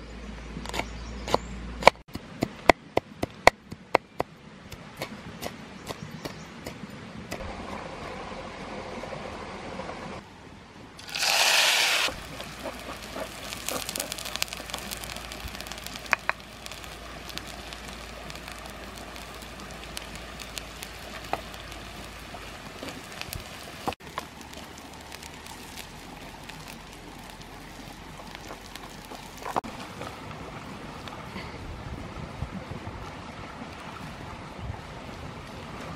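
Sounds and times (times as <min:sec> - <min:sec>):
chillies sizzling in hot oil: 0:11.0 - 0:29.6.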